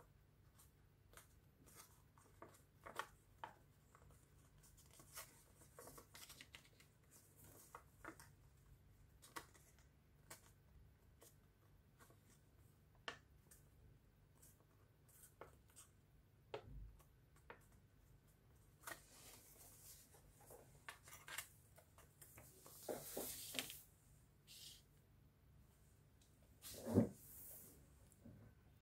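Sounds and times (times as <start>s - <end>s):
paper rustling and crinkling: 1.2s - 8.3s, 18.8s - 23.9s.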